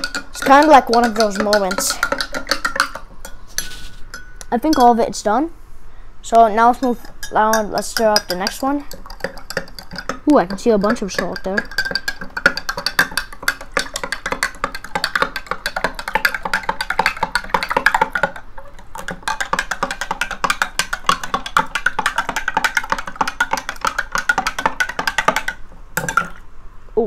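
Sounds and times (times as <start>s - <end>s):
spoon clinking against glass: 0.0s - 5.0s, 6.8s - 18.3s.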